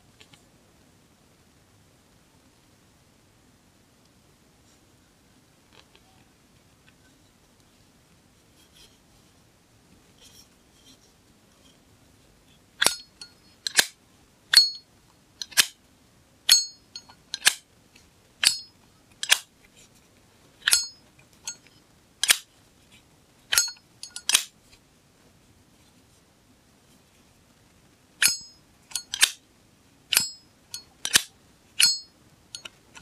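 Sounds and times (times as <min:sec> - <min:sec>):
lighter lid clicking open and shut: 0:15.4 - 0:15.7, 0:28.2 - 0:29.4.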